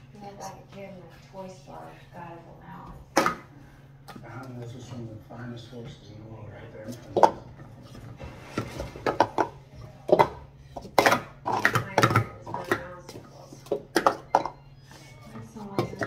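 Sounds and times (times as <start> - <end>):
plastic cups clattering: 3.1 - 4.8, 6.8 - 16.0.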